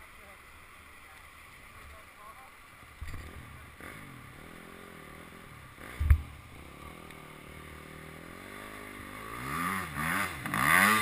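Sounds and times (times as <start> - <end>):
rushing floodwater: 0.0 - 5.4
dirt bike engine revving: 3.1 - 11.0
sharp thump: 6.0 - 6.3.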